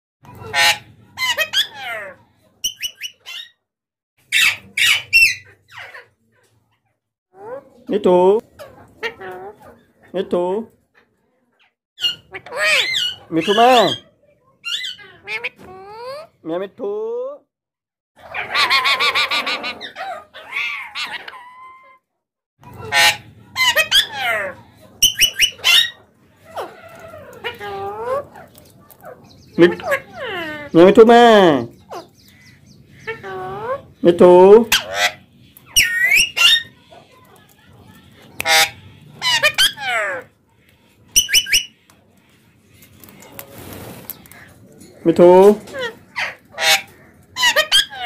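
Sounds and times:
parakeets calling loudly: 0.2 - 3.6, 4.2 - 6.2, 12.0 - 16.4, 18.2 - 21.9, 22.6 - 40.4, 41.1 - 41.9, 43.0 - 48.0.

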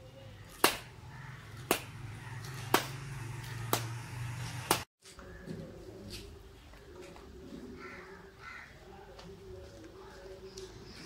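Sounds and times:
axe chopping into a tree: 0.6 - 1.0, 1.6 - 3.0, 3.7 - 4.0, 4.7 - 4.9.

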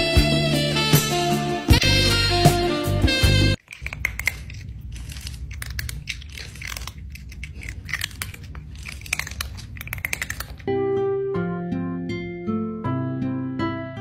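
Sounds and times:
cat chewing and crunching food: 3.6 - 10.7.

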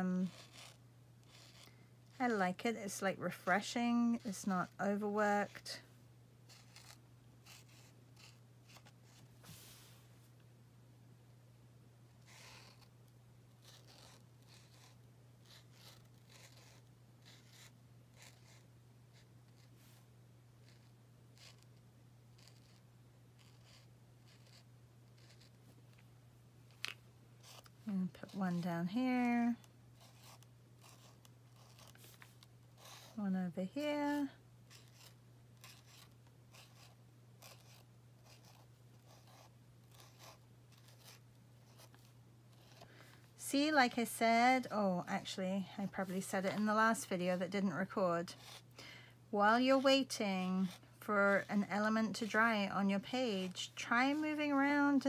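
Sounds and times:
low electrical hum: 0.0 - 55.0
marker scratching on paper: 0.2 - 1.7, 6.5 - 9.2, 12.2 - 12.9, 13.6 - 19.7, 20.6 - 21.7, 22.4 - 22.8, 23.4 - 25.6, 26.7 - 42.8, 48.3 - 48.7, 49.6 - 55.0.

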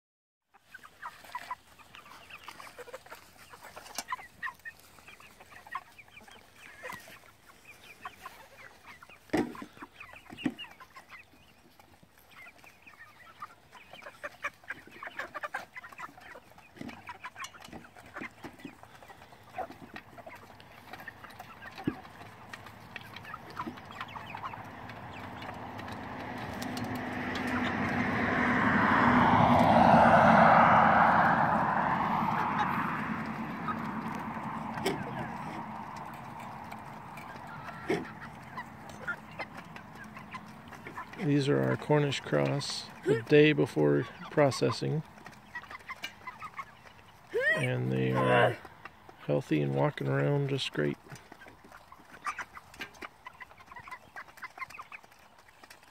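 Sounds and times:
chickens clucking: 0.5 - 55.9
rushing noise: 27.7 - 34.6.

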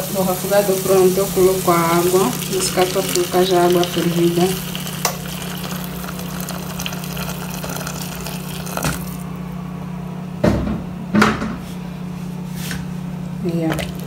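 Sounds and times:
steady low hum: 0.0 - 14.0
water pouring into a pot: 0.3 - 9.2, 13.7 - 14.0.

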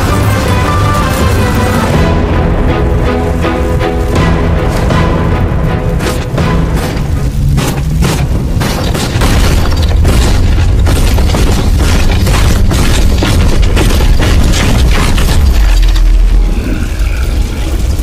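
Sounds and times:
crackling impacts: 0.0 - 18.0
deep booming explosion rumble: 6.4 - 18.0.

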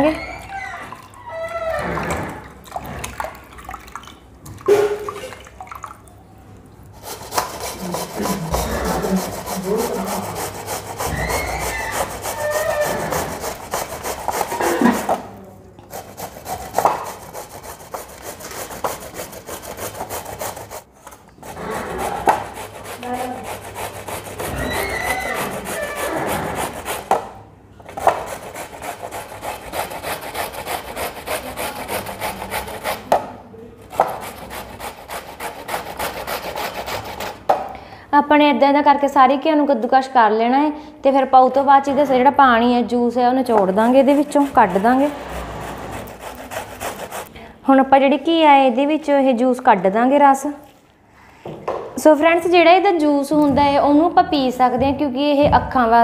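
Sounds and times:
gourd grated on metal grater: 7.0 - 15.1, 43.6 - 47.3.

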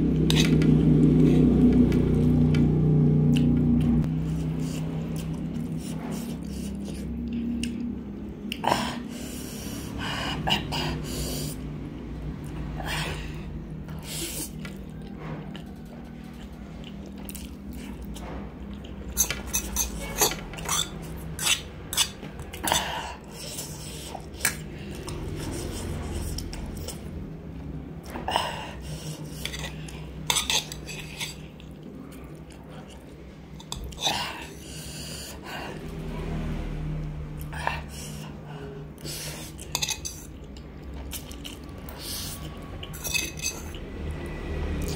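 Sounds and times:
chewing: 3.3 - 9.1, 13.8 - 34.8, 39.0 - 44.9.

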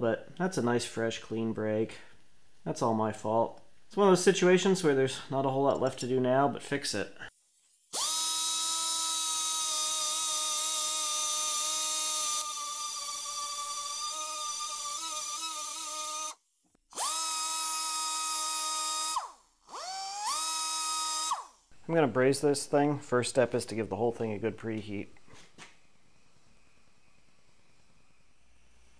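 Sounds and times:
rotary tool grinding metal: 7.6 - 21.6.

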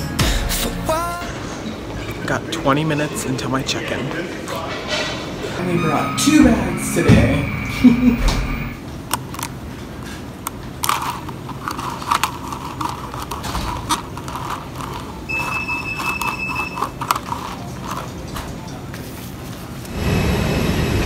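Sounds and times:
steady high tone: 5.4 - 8.9
ice cubes rattling in plastic cup: 10.5 - 18.8.

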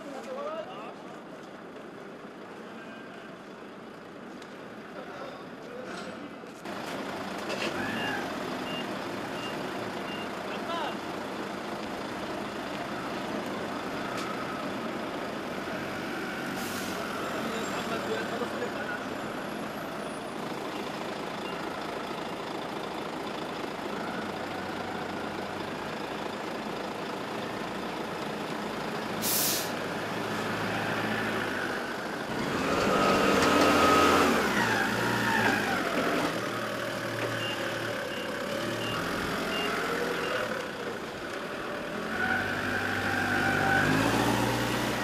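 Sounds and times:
heavy trucks idling: 0.1 - 45.0
air-brake hiss: 16.5 - 17.1, 29.2 - 29.8
truck engine revving: 29.8 - 45.0.

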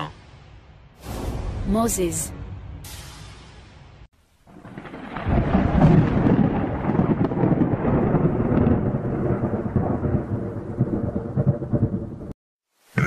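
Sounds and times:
rolling thunder: 4.5 - 12.4.

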